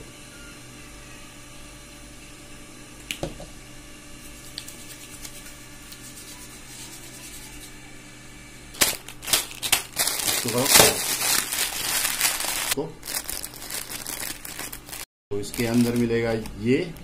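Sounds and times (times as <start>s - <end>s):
low room hum: 0.0s - 17.0s
plastic wrapper crinkling: 8.8s - 16.7s.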